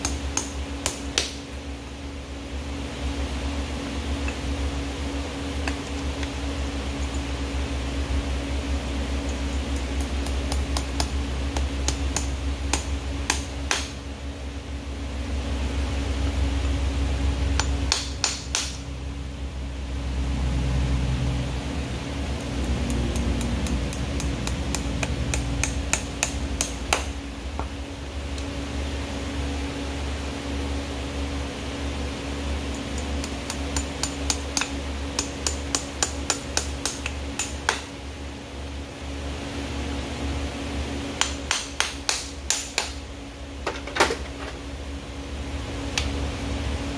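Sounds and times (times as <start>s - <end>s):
steady low hum: 0.0s - 46.9s
hammer tapping metal nails: 17.6s - 18.8s, 22.4s - 27.2s, 32.8s - 37.9s, 41.2s - 43.0s.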